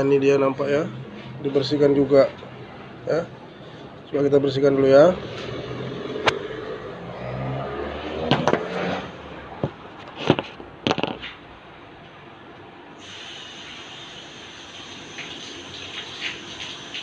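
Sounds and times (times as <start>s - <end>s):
clicks and knocks of handling: 9.6s - 11.4s.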